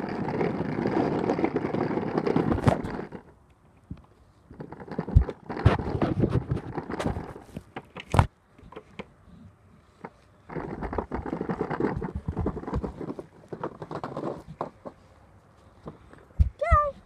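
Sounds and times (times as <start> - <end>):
plastic wheels rattling over concrete: 0.0 - 8.2, 10.0 - 15.1.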